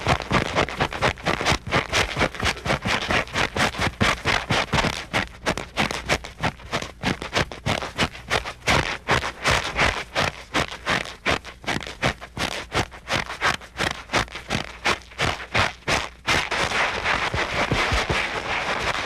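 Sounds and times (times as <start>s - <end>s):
footsteps scuffing: 7.2s - 19.0s.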